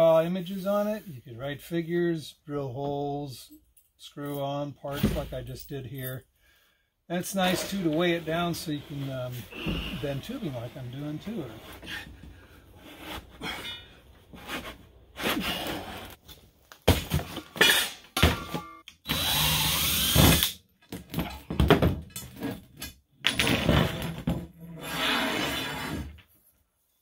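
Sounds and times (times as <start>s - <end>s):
cordless drill driving screw: 19.1s - 20.6s.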